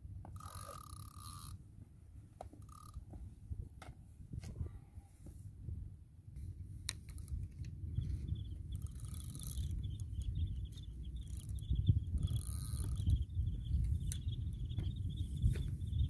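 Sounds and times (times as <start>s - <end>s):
wind buffeting microphone: 2.9s - 6.0s, 7.0s - 16.0s.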